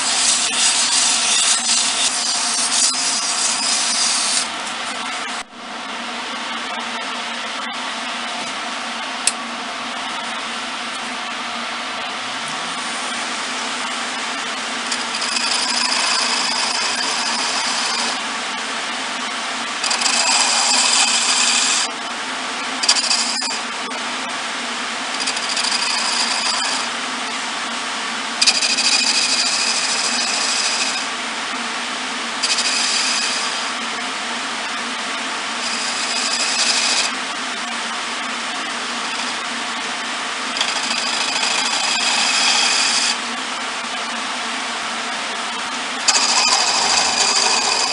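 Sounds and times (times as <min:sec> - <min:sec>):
chisel scraping spinning wood: 0:00.0 - 0:04.5, 0:12.3 - 0:18.3, 0:19.8 - 0:21.9, 0:22.8 - 0:24.0, 0:25.1 - 0:27.0, 0:28.4 - 0:31.1, 0:32.4 - 0:33.9, 0:35.5 - 0:37.2, 0:38.6 - 0:39.7, 0:40.4 - 0:43.3, 0:46.0 - 0:47.9
wood lathe humming: 0:00.0 - 0:05.1, 0:12.0 - 0:27.5, 0:28.1 - 0:47.9.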